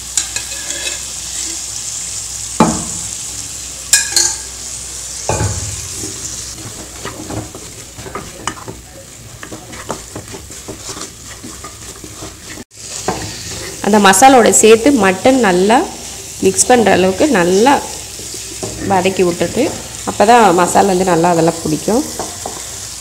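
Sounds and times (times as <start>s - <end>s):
steady sizzle: 0.0s - 23.0s
spatula scraping a pan: 0.2s - 1.7s, 5.8s - 14.0s, 22.1s - 23.0s.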